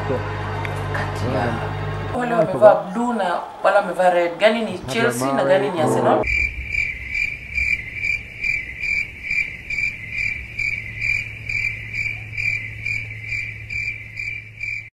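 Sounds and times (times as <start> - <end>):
cricket chirping: 6.2 - 14.9.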